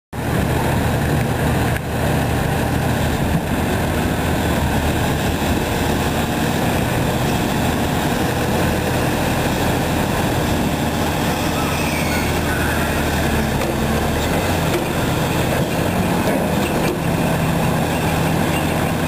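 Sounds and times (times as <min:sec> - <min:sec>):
garbage truck diesel engine: 0:00.2 - 0:19.0
clunk: 0:14.7 - 0:15.0.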